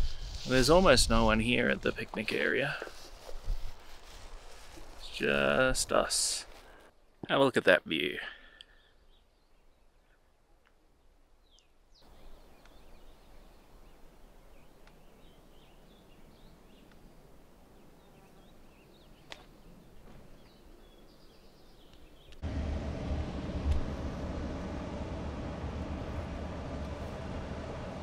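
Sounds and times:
steady wind: 0:00.0 - 0:07.0, 0:12.1 - 0:28.0
small birds chirping: 0:08.6 - 0:22.4.

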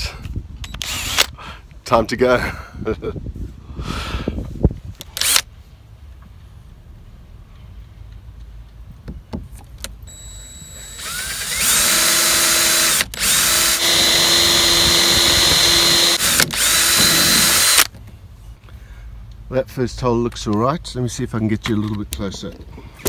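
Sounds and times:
power drill whining: 0:00.7 - 0:01.3, 0:10.1 - 0:17.9.

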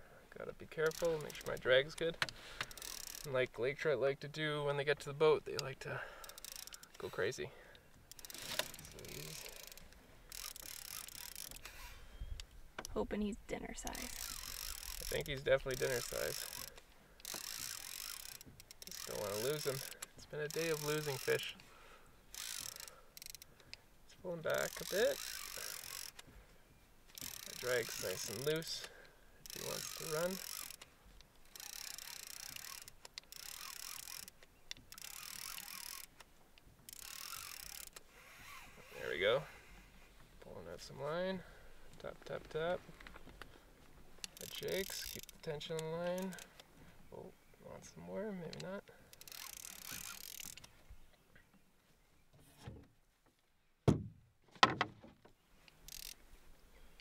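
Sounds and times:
fishing reel drag clicking: 0:00.8 - 0:03.4, 0:05.5 - 0:13.0, 0:14.0 - 0:21.7, 0:22.3 - 0:23.8, 0:24.4 - 0:26.3, 0:27.1 - 0:39.8, 0:44.2 - 0:46.7, 0:48.5 - 0:50.7, 0:55.7 - 0:56.2
paddle knocking against canoe: 0:53.8 - 0:55.3.

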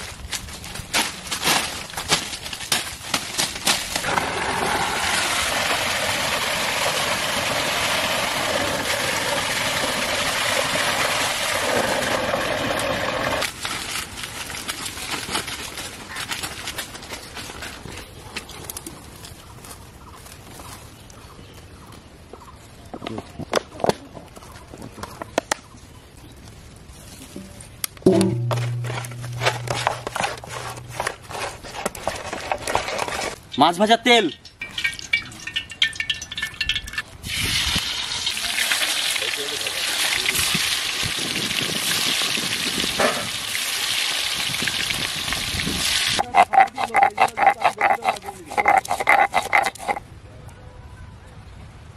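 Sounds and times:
outdoor background noise: 0:00.0 - 0:51.9
stone roller scraping grinding stone: 0:10.6 - 0:13.5, 0:28.1 - 0:33.4, 0:46.2 - 0:50.0
fish sizzling in hot oil: 0:34.7 - 0:46.2.

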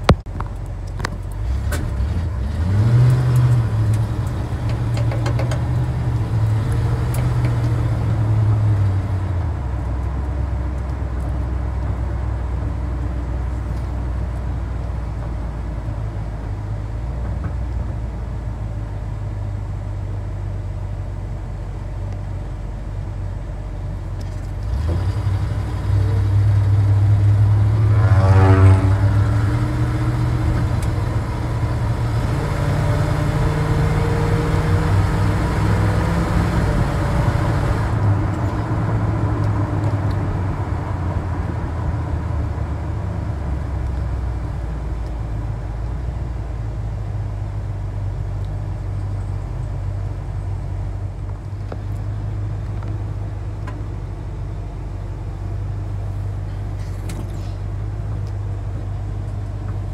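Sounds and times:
pickup truck engine revving: 0:01.4 - 0:09.3, 0:24.6 - 0:43.4.

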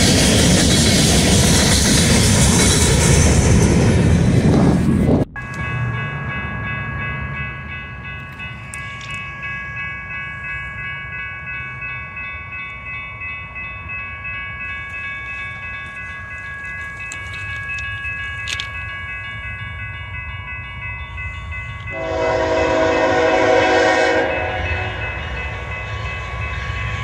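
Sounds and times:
locomotive horn chord: 0:21.9 - 0:25.4.

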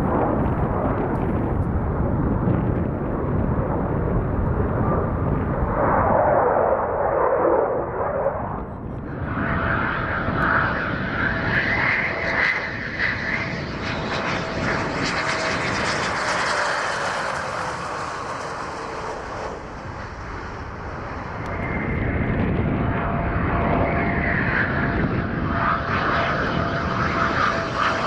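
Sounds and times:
jet engine whine: 0:00.0 - 0:28.0
loud jet engine rush: 0:00.0 - 0:28.0.

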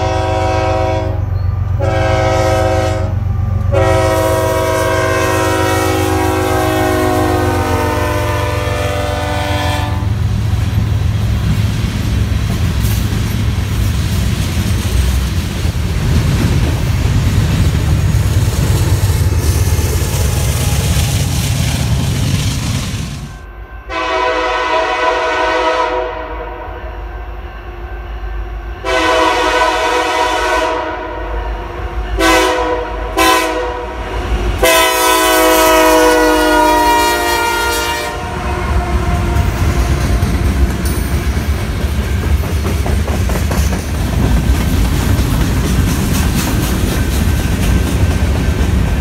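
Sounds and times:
locomotive air horn blasts: 0:00.0 - 0:10.3, 0:23.2 - 0:27.2, 0:28.8 - 0:40.6
train rumbling past: 0:00.0 - 0:49.0
clickety-clack over rail joints: 0:10.5 - 0:23.0, 0:39.1 - 0:49.0.

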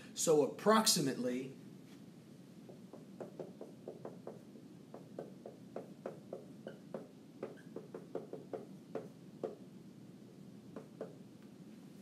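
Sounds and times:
marker writing on whiteboard: 0:02.6 - 0:09.6
marker tip squeaking: 0:06.6 - 0:08.1.

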